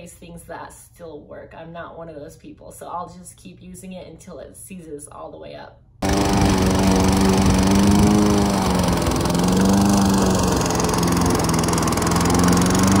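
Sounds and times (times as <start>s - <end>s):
lawn mower engine running: 6.0s - 13.0s.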